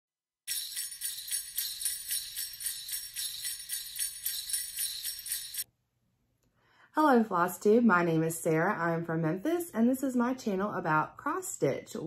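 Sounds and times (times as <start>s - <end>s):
jingle bells shaken: 0.5s - 5.7s.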